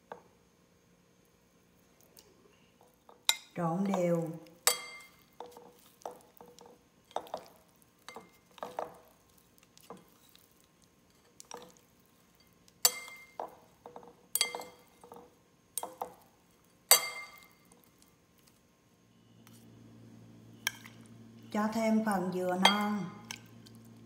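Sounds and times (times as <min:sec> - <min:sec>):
utensils clinking on glass bowl: 0:14.4 - 0:15.2.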